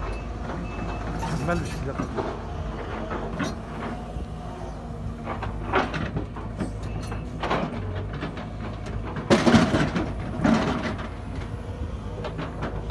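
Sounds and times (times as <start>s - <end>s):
excavator diesel engine running: 0.0s - 12.9s.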